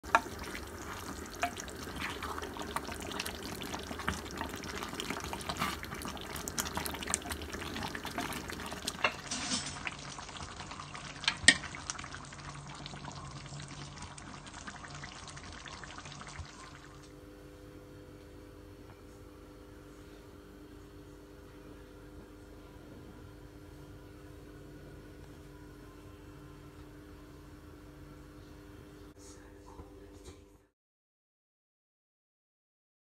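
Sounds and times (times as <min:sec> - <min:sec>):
sauce simmering and spattering: 0:00.0 - 0:16.6.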